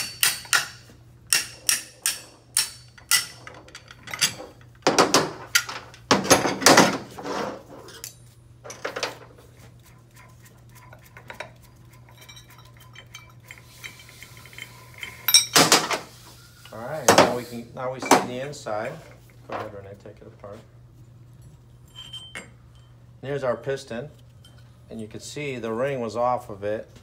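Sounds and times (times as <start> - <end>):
steel tools clinking: 0.0 - 4.8, 7.8 - 9.0, 12.0 - 15.8, 21.5 - 23.0
metal parts clattering: 2.0 - 7.1.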